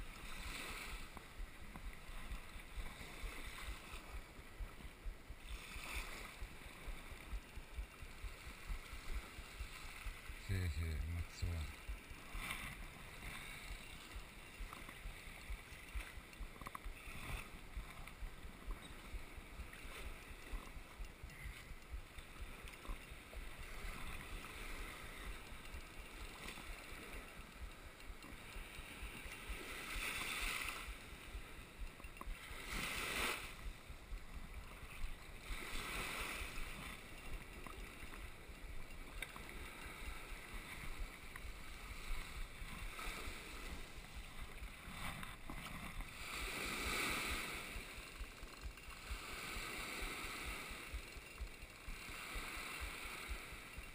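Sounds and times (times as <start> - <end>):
small waves washing: 0.0 - 53.9.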